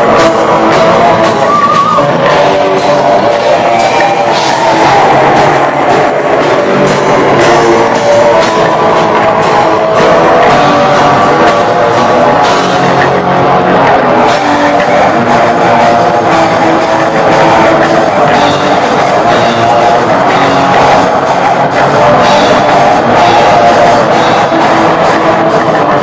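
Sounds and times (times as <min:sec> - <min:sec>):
metal band playing live: 0:00.0 - 0:26.0.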